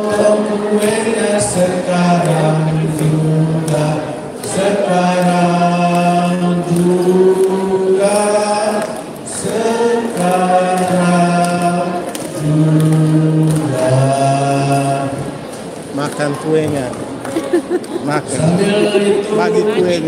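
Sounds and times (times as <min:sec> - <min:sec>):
group singing unaccompanied: 0:00.0 - 0:15.6, 0:18.2 - 0:20.0.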